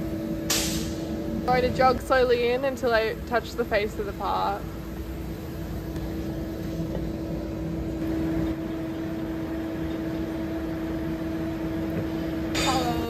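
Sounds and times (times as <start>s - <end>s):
lathe machine hum: 1.0s - 12.5s.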